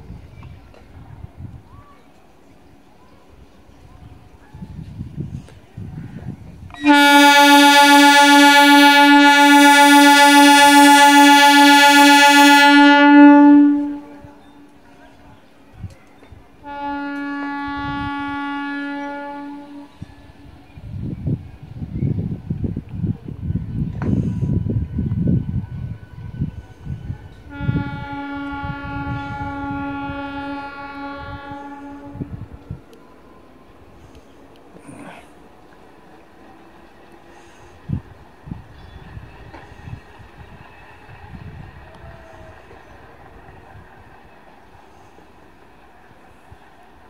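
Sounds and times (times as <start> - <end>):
train horn blast: 6.7 - 14.7, 16.6 - 20.5, 25.7 - 33.0, 37.3 - 37.8.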